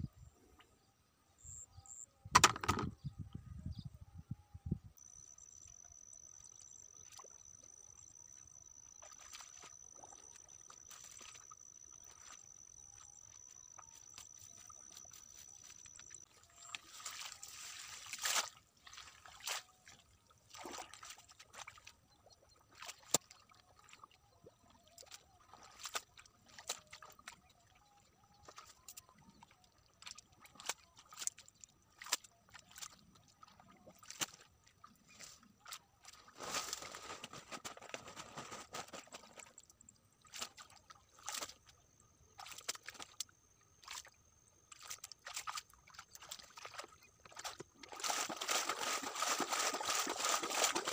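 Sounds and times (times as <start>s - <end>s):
hands splashing in muddy water: 16.6s - 21.9s, 22.7s - 24.1s, 30.0s - 41.7s, 42.3s - 50.9s.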